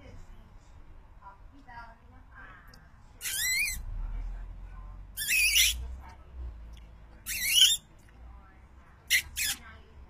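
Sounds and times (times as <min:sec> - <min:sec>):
toddler squealing: 0:03.2 - 0:03.8, 0:07.3 - 0:07.8.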